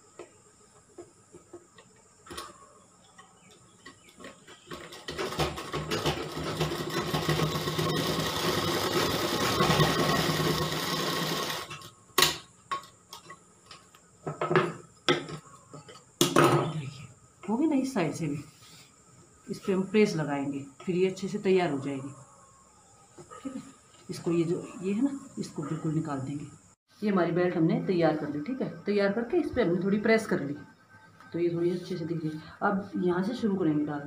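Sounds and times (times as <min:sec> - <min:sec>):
sewing machine running: 0:05.2 - 0:11.8.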